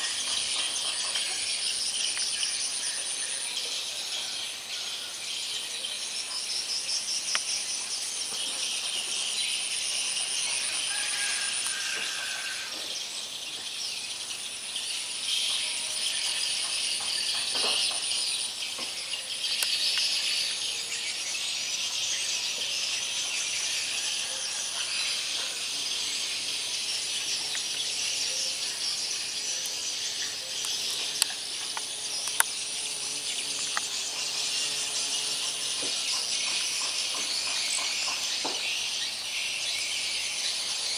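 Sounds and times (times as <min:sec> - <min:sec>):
insects trilling and buzzing: 0:00.0 - 0:40.9
high thin insect trill: 0:06.2 - 0:13.2
sharp clicks: 0:30.6 - 0:32.6.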